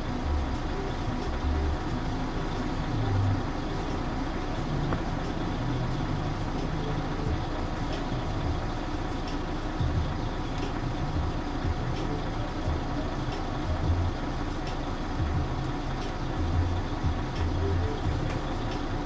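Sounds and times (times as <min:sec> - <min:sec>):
vehicle engine idling: 0:00.0 - 0:19.0.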